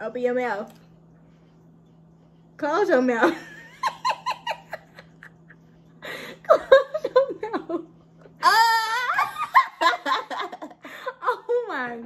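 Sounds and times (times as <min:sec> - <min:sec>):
women laughing: 0:03.2 - 0:07.9, 0:08.5 - 0:11.6.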